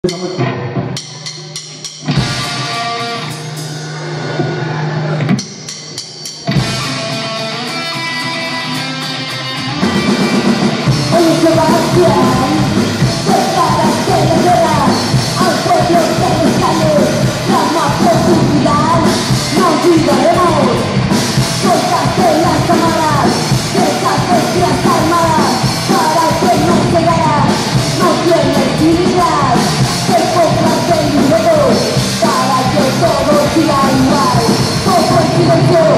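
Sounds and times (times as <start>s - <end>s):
bass guitar: 0.0s - 5.5s, 6.4s - 35.9s
drum kit: 0.0s - 35.9s
electric guitar: 2.0s - 5.4s, 6.4s - 35.9s
woman singing: 11.1s - 20.8s, 21.6s - 35.9s.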